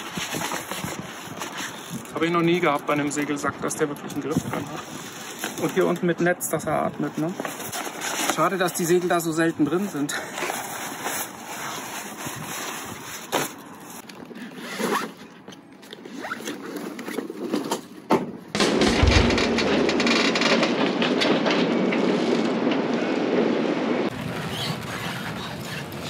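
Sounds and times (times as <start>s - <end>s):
sail rustling and clicks: 0.0s - 23.1s
low thump: 18.6s - 20.1s.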